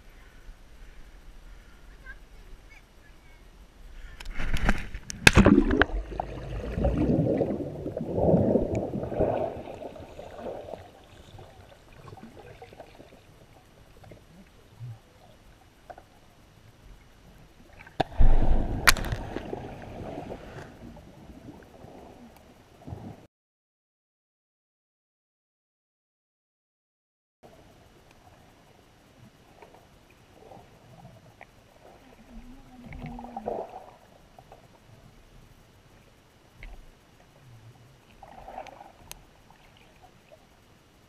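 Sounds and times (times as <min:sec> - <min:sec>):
muffled underwater sloshing: 0:00.0 - 0:23.2, 0:28.2 - 0:41.0
camera splashing into water: 0:04.3 - 0:06.0, 0:18.0 - 0:19.7.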